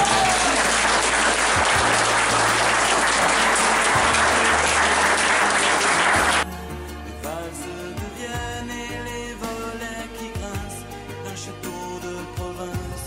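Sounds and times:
audience applauding: 0.0s - 6.4s
background music: 0.0s - 13.0s.

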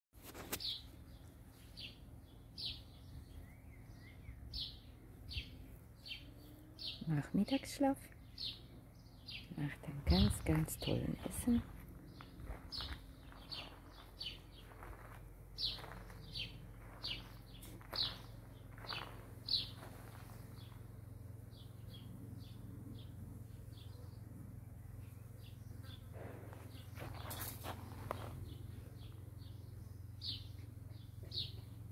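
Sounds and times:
low steady hum: 0.9s - 31.9s
small bird chirping: 8.2s - 26.1s, 26.7s - 31.9s.

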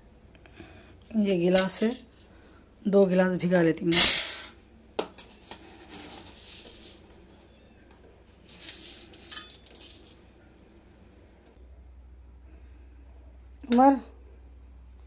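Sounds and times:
lentils rattling into steel pot: 5.4s - 7.1s, 8.4s - 10.3s.

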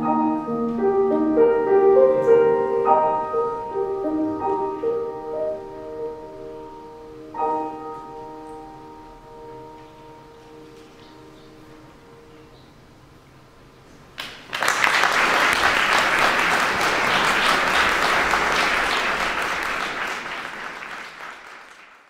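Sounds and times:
audience applauding: 14.2s - 22.0s.

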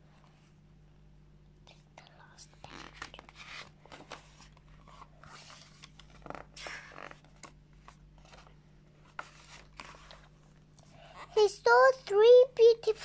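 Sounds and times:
paper pages turning: 2.7s - 10.3s.

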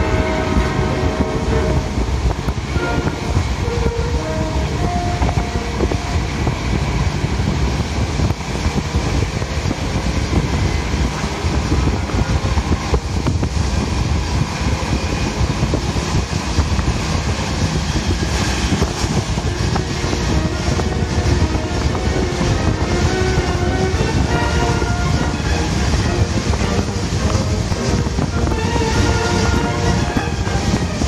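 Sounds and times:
train wheels rumbling on track: 0.0s - 31.0s.

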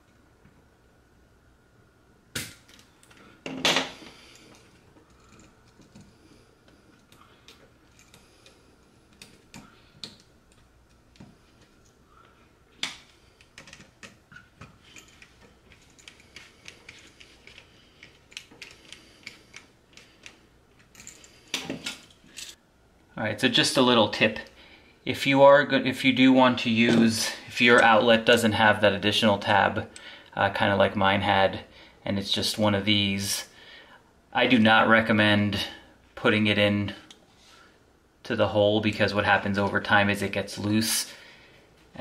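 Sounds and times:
hand tools clicking and tapping: 4.4s - 12.0s, 12.8s - 22.6s.

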